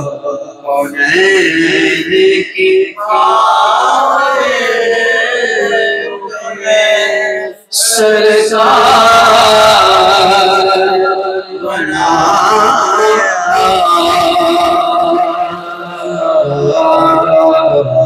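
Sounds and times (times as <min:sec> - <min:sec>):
man singing solo: 0:11.6 - 0:18.0.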